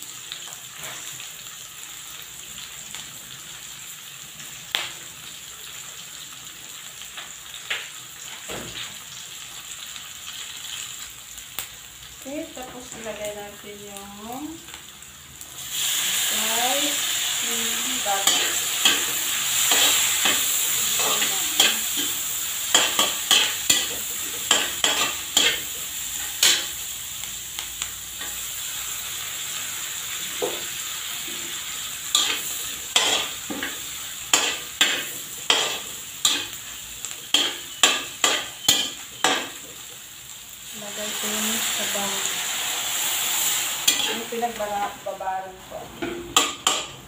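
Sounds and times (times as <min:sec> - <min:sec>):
food sizzling in hot oil: 0:00.0 - 0:47.0
metal spatula scraping a wok: 0:17.1 - 0:26.9, 0:30.4 - 0:39.6, 0:41.6 - 0:44.4.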